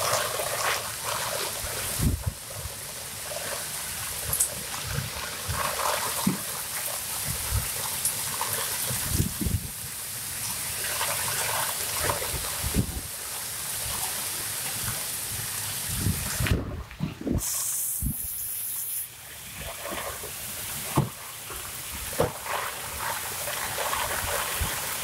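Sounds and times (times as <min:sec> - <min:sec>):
rain falling: 0:00.0 - 0:25.0
wind thumping on microphone: 0:01.6 - 0:02.8, 0:07.2 - 0:07.9, 0:08.8 - 0:09.8, 0:12.0 - 0:13.1, 0:15.3 - 0:18.5.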